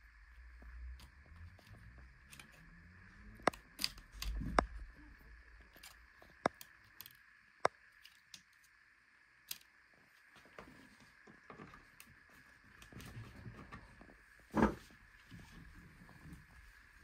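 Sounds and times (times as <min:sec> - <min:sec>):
faint steady tone: 0:00.0 - 0:17.0
small clicks and taps of connectors: 0:03.4 - 0:04.8, 0:05.6 - 0:08.7.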